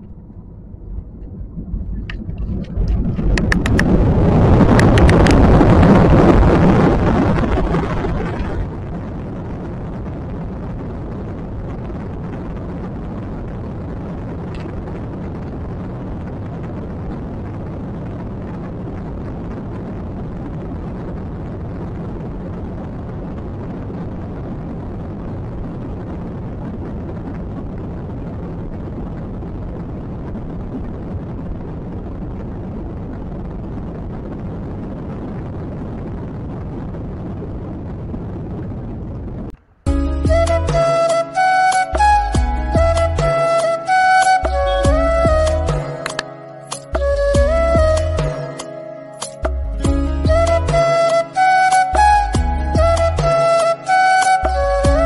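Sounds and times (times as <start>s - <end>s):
wheels rumbling: 0.0s - 17.9s, 37.5s - 48.8s.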